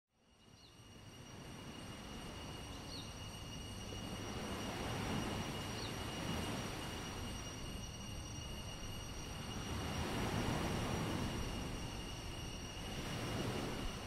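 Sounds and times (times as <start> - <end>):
high-pitched insect tones: 0.3 - 14.0
surf rushing: 3.8 - 14.0.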